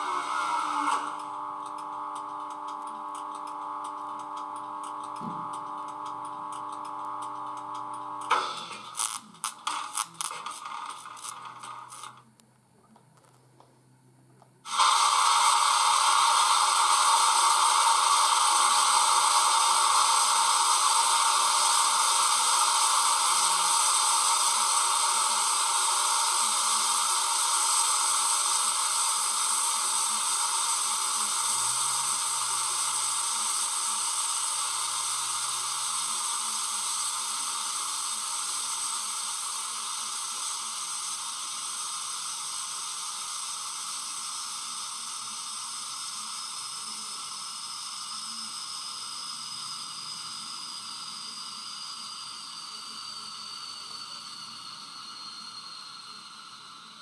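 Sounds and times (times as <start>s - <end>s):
fan-like hiss: 14.6s - 57.0s.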